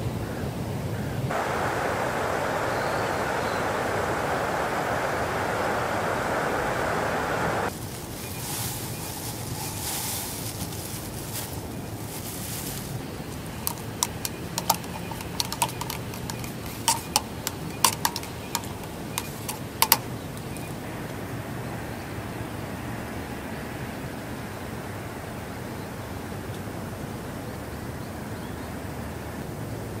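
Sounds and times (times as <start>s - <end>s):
soft hiss: 1.3s - 20.9s
spoon clinking in metal mug: 13.6s - 20.0s.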